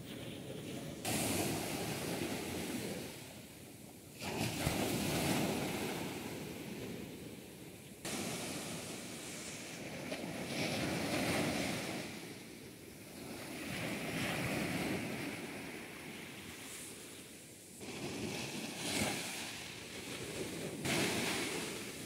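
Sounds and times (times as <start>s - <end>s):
surf breaking: 8.0s - 12.4s, 17.8s - 22.0s.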